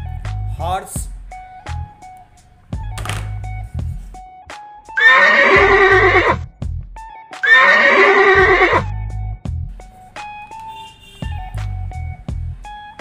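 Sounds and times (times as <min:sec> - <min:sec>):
background music with bass line: 0:00.0 - 0:10.6, 0:11.2 - 0:13.0
horse whinnying: 0:05.0 - 0:06.4, 0:07.4 - 0:08.9.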